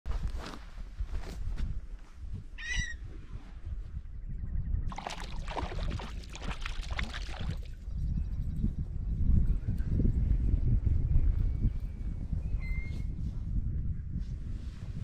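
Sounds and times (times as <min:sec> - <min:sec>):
wind rumble on microphone: 0:00.0 - 0:15.0
fish splashing in water: 0:04.9 - 0:07.7.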